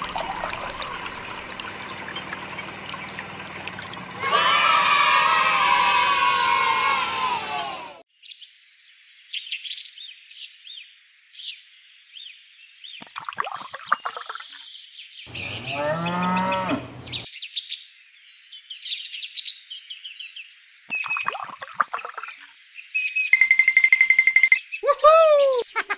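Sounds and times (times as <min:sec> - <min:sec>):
crowd cheering: 0:00.0 - 0:08.0, 0:24.8 - 0:25.6
small birds chirping: 0:08.2 - 0:23.4
cow mooing: 0:15.3 - 0:17.2.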